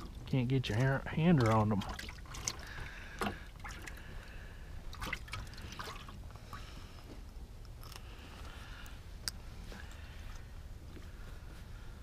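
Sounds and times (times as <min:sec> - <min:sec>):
water trickling and dripping: 0:00.0 - 0:04.3.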